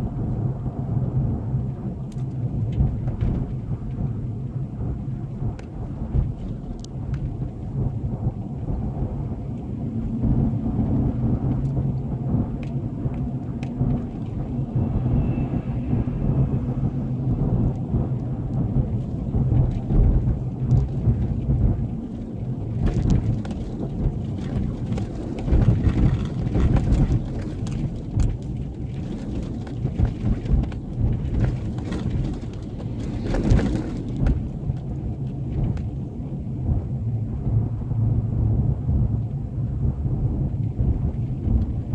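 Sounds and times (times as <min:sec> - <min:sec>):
low drone: 0:00.0 - 0:29.7, 0:30.7 - 0:41.9
tyres rumbling on gravel: 0:01.9 - 0:41.9
knocks and rattles: 0:17.4 - 0:36.0.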